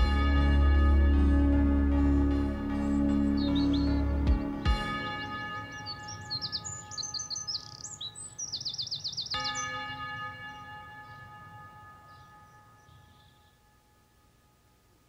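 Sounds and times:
ambient music with bell-like tones: 0.0 - 14.4
bird chirps: 1.9 - 9.9, 12.0 - 13.7
fast bird trill: 2.9 - 4.2, 5.6 - 9.8.

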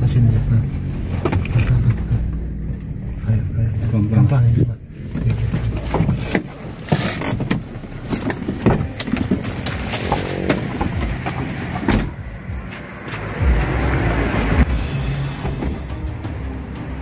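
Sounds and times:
car engine running low: 0.0 - 17.0
knocks of people shifting: 4.6 - 14.8
car door opening: 5.0 - 13.8.

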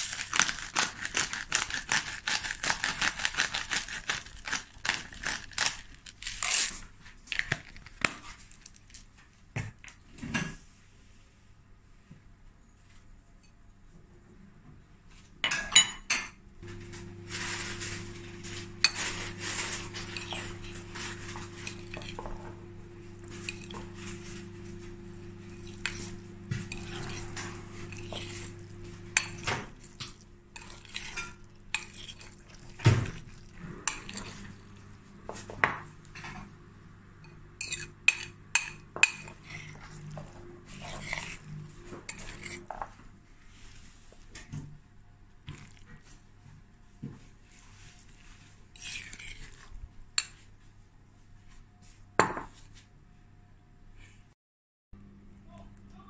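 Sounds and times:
low hum: 16.6 - 37.6
fork scraping a glass bowl: 17.4 - 24.8, 25.5 - 34.5, 37.6 - 42.9, 48.7 - 50.4.

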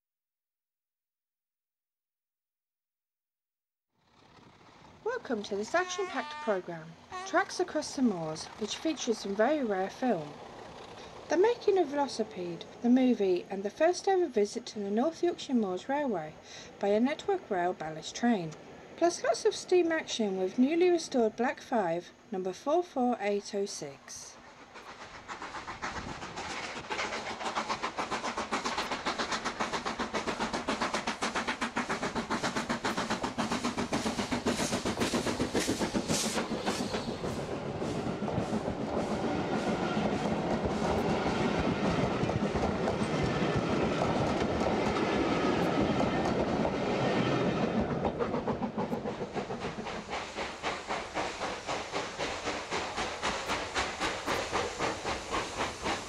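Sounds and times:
steam locomotive exhaust chuffing: 4.0 - 15.8, 23.5 - 56.0
train wheels clattering on rails: 24.7 - 56.0.

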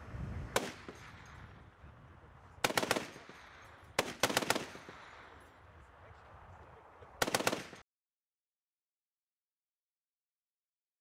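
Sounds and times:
heavy machine gun firing: 2.6 - 3.4, 4.0 - 5.1, 7.2 - 7.8.

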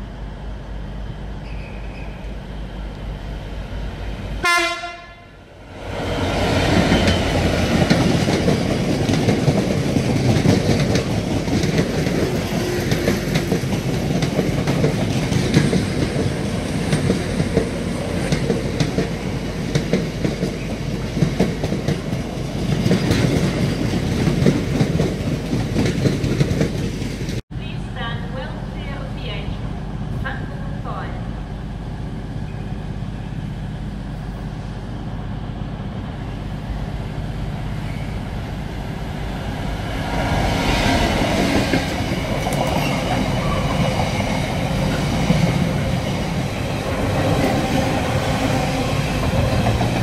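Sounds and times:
train horn: 4.4 - 5.4
train wheels clattering on rails: 6.4 - 27.4, 40.2 - 50.0.

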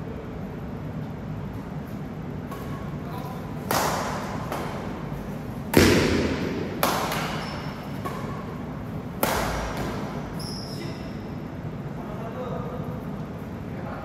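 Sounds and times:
badminton racket hitting shuttlecock: 3.6 - 10.4.

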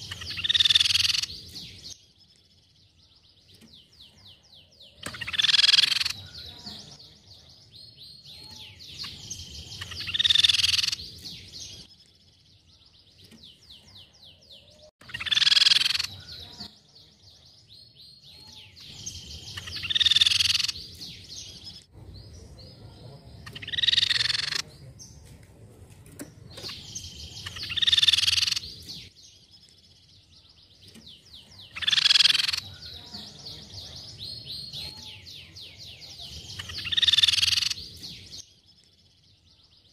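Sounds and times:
high rattling bird trills: 0.0 - 2.0, 4.9 - 7.0, 8.0 - 11.8, 15.0 - 16.6, 18.1 - 22.3, 23.4 - 24.6, 26.6 - 29.1, 30.8 - 35.4, 36.4 - 38.3
bird harsh call: 5.0 - 7.0, 15.0 - 16.6, 23.4 - 24.6, 31.6 - 33.3.

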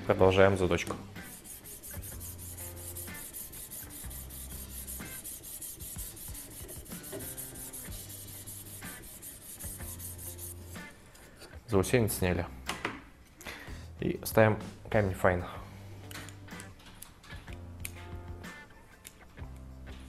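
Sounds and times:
sharpening stone scraping steel: 1.2 - 10.6.

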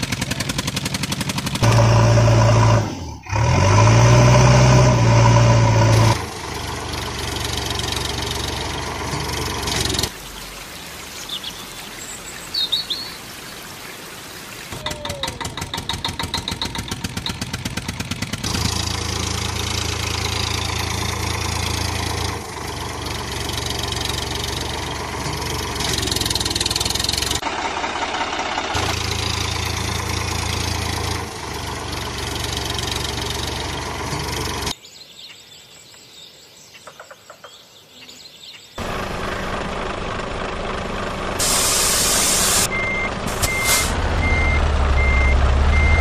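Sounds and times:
tractor engine chugging: 0.0 - 2.7, 6.1 - 10.1, 14.8 - 34.7, 38.8 - 46.0.

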